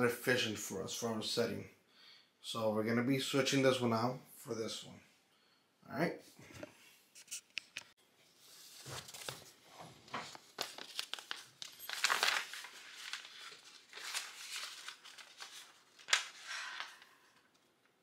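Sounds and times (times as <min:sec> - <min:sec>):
paper rustling and crinkling: 0:08.3 - 0:17.7.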